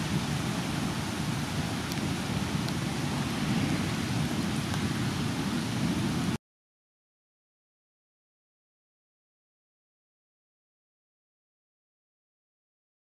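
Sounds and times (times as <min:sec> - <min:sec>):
steady rain: 0:00.0 - 0:06.4
wind noise: 0:00.0 - 0:06.4.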